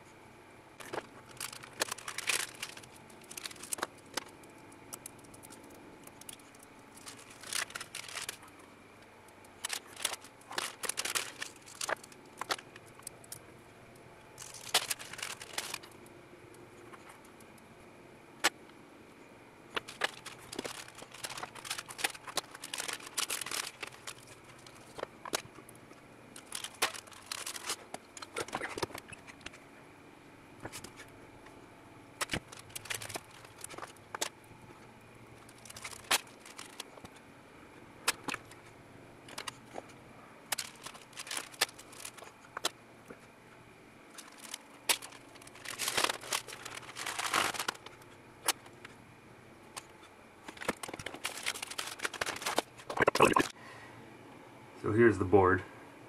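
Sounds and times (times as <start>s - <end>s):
plastic bags crinkling: 0.8s - 8.6s, 9.4s - 13.4s, 14.4s - 16.0s, 19.7s - 29.6s, 32.2s - 34.4s, 35.3s - 37.2s, 39.2s - 39.9s, 40.5s - 42.8s, 44.1s - 49.0s, 49.7s - 53.6s.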